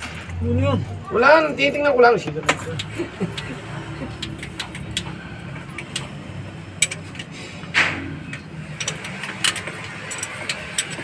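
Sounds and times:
wrench clicking on metal: 0:04.2 - 0:07.3, 0:08.3 - 0:11.0.

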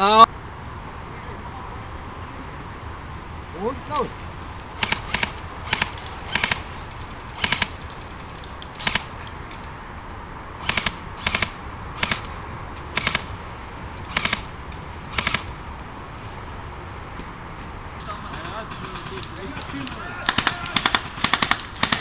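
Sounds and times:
airsoft rifle firing bursts: 0:04.8 - 0:09.2, 0:10.6 - 0:12.3, 0:12.9 - 0:13.3, 0:14.0 - 0:15.6, 0:18.1 - 0:22.0.

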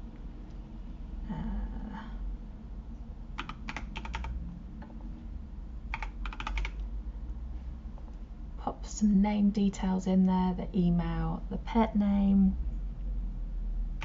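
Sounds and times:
typing on computer keyboard: 0:03.4 - 0:04.4, 0:05.9 - 0:06.9.

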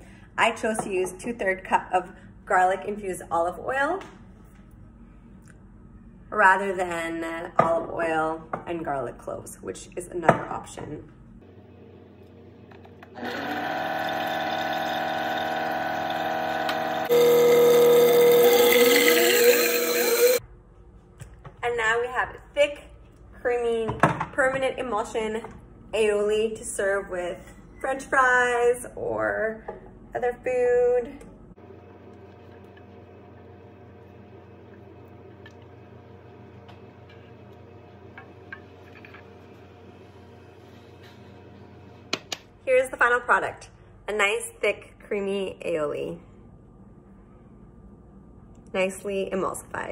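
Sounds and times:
blender motor whine: 0:12.9 - 0:20.4.

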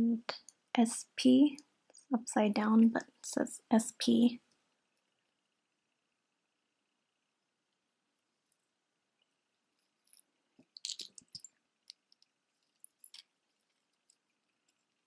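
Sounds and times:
jewelry chains clinking: 0:10.0 - 0:11.5, 0:12.7 - 0:13.3.

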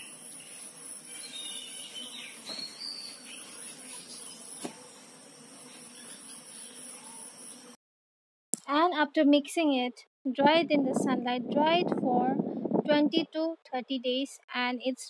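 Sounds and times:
bird chirps: 0:00.0 - 0:04.7, 0:05.7 - 0:07.8
insect trilling: 0:00.0 - 0:07.8.

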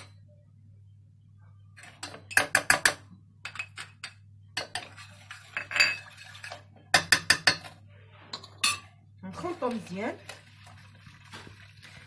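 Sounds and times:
spoon tapping in metal saucepan: 0:01.8 - 0:05.0, 0:06.9 - 0:07.8.

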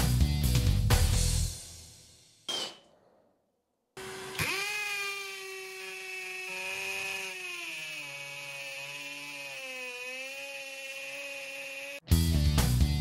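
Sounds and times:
hammer drill drilling into concrete: 0:04.0 - 0:12.1.

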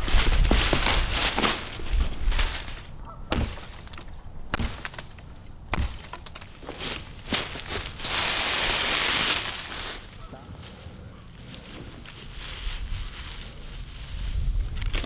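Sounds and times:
dead wood cracking: 0:00.0 - 0:08.0.

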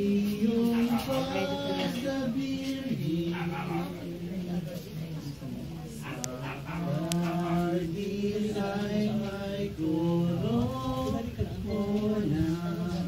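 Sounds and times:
person chanting: 0:00.0 - 0:04.6.

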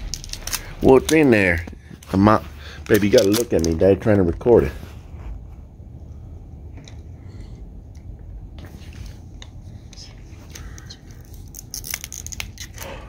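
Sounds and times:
low rumble: 0:00.0 - 0:03.0
plastic package clicks and rustles: 0:00.0 - 0:04.2, 0:10.5 - 0:13.0.

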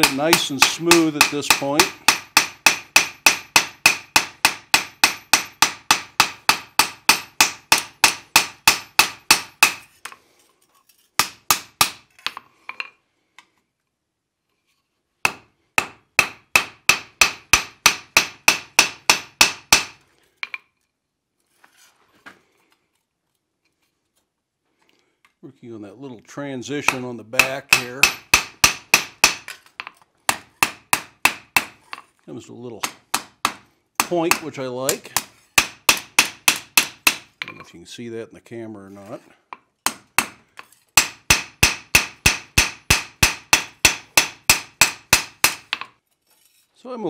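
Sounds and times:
hammer striking metal on anvil: 0:00.0 - 0:09.8, 0:15.3 - 0:20.0, 0:26.8 - 0:29.6, 0:30.3 - 0:31.8, 0:32.8 - 0:37.6, 0:41.0 - 0:45.9.

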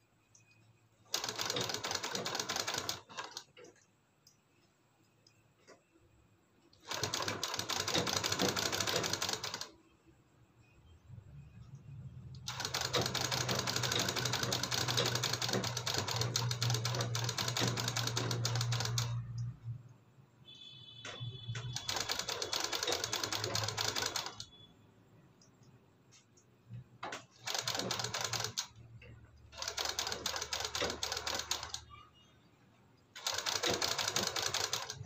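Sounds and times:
sewing machine stitching: 0:01.1 - 0:03.8, 0:06.8 - 0:09.7, 0:12.4 - 0:19.3, 0:21.4 - 0:24.5, 0:27.0 - 0:28.8, 0:29.5 - 0:32.0, 0:33.2 - 0:35.0.

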